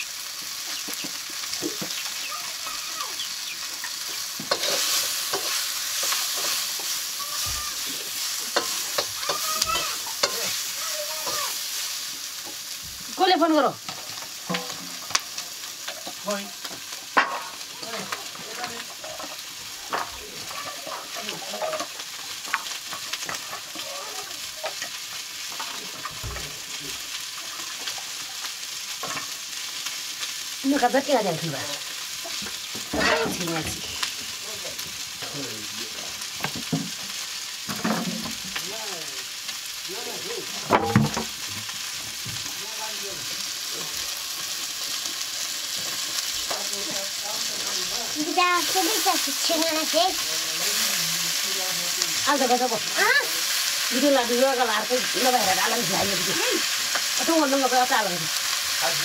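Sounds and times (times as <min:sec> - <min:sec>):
food sizzling in a wok: 0:00.0 - 0:59.0
metal pots and utensils clanking: 0:03.6 - 0:12.7, 0:13.8 - 0:26.8, 0:27.4 - 0:29.4, 0:32.2 - 0:35.5, 0:37.6 - 0:38.6, 0:40.5 - 0:41.4.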